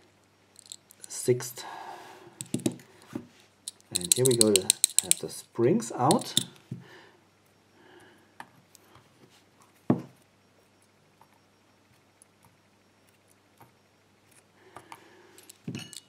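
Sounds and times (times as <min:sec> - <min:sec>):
tweezers clicking: 0:03.7 - 0:05.3, 0:06.1 - 0:06.5.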